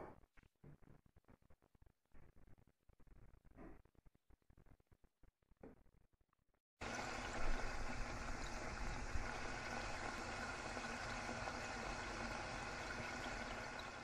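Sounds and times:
dough sizzling in hot oil: 6.8s - 14.0s.

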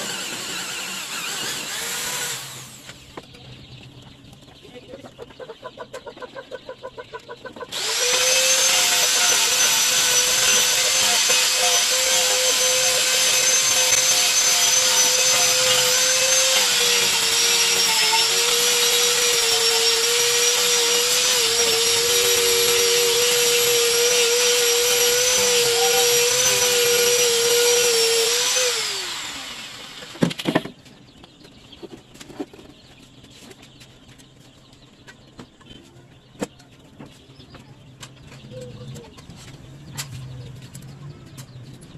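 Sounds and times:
angle grinder whining: 0.0s - 3.0s, 7.7s - 30.4s.

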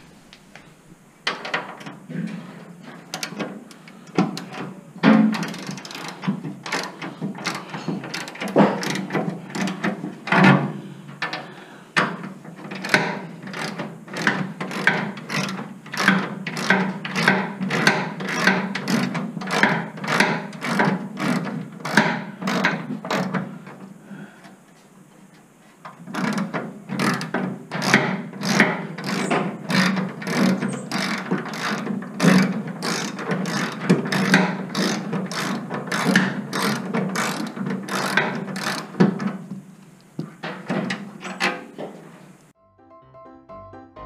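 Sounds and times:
socket ratchet clicking: 5.3s - 9.8s, 12.7s - 23.4s, 26.2s - 39.0s.

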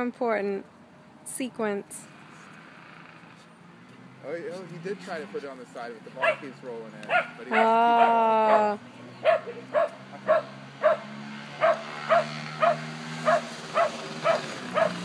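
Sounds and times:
puppy yipping: 6.2s - 15.0s.

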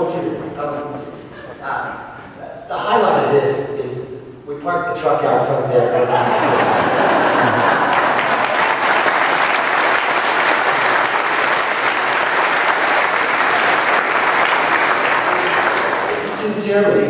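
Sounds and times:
congregation applauding: 6.4s - 16.7s.

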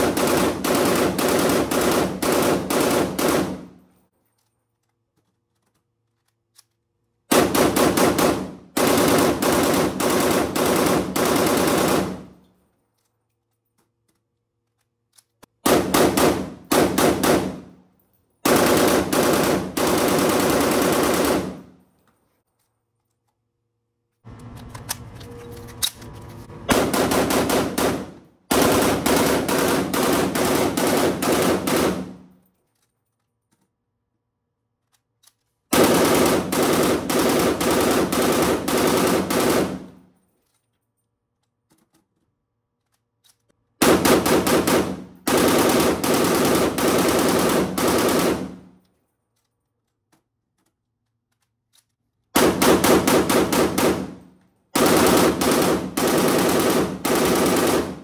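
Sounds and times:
automatic rifle bursts: 52.4s - 58.0s.

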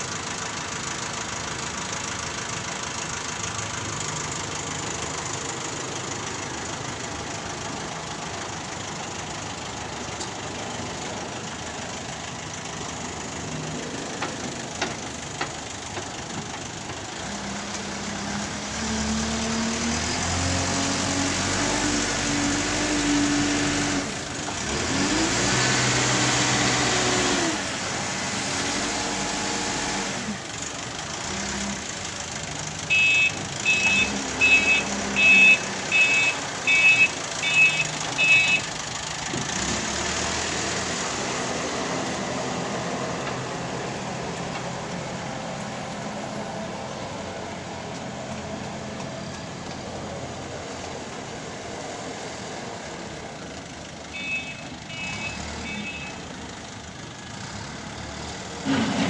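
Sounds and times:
diesel engine revving: 0.0s - 59.0s
reversing alarm beeps: 32.9s - 38.6s
loader bucket into soil: 58.1s - 59.0s.

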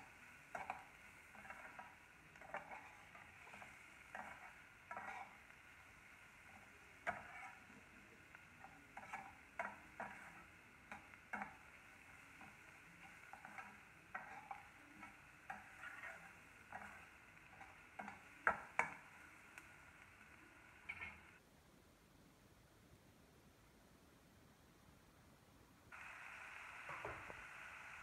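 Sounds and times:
onions sizzling in oil: 0.0s - 21.4s, 25.9s - 28.0s
metal spoon scraping steel pan: 0.5s - 5.5s, 6.5s - 7.7s, 8.6s - 11.6s, 12.4s - 18.2s.

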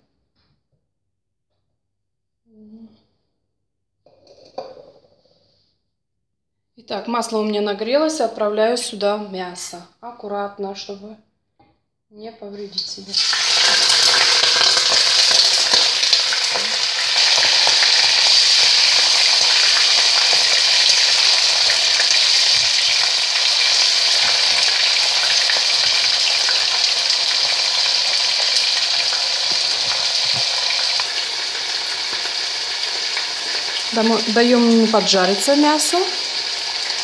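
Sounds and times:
meat sizzling in hot oil: 12.8s - 37.0s.

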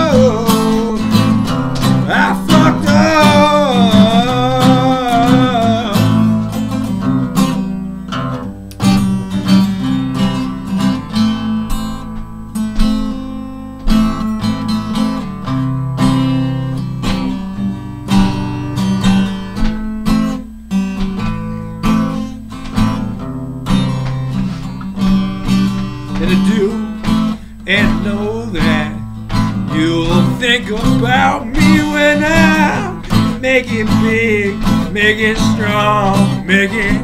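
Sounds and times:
acoustic guitar strumming: 0.0s - 37.0s.

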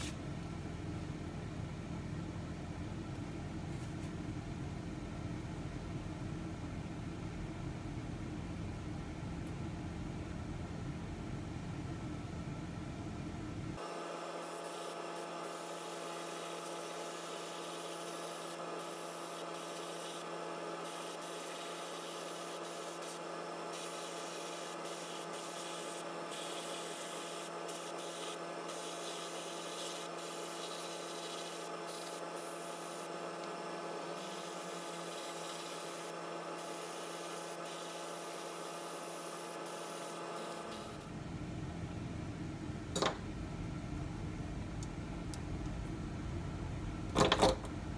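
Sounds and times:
airbrush hissing: 14.4s - 33.1s, 34.0s - 41.0s
steady hum: 14.4s - 47.9s.

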